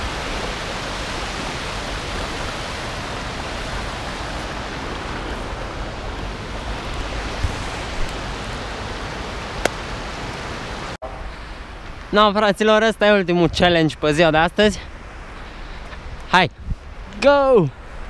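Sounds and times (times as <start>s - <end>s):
shallow river water rushing: 0.0s - 12.0s.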